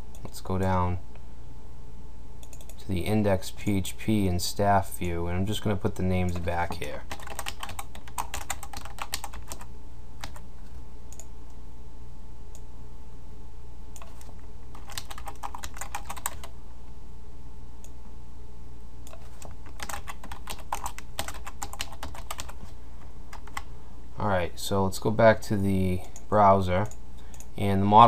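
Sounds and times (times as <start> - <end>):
steady low hum: 0.0 - 28.0
typing on computer keyboard: 7.0 - 10.4, 14.0 - 16.5, 19.1 - 22.6, 23.3 - 23.7.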